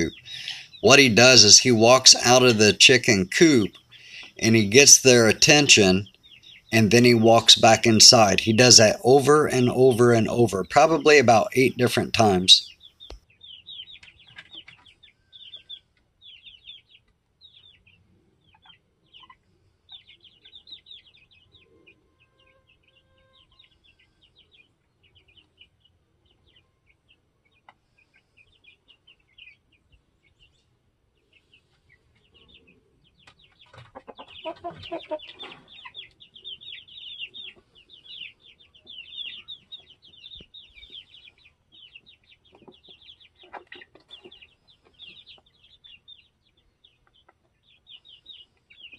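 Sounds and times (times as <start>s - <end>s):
chicken clucking loudly: 0.0s - 12.8s, 31.3s - 48.9s
baby chicks peeping: 0.0s - 48.9s.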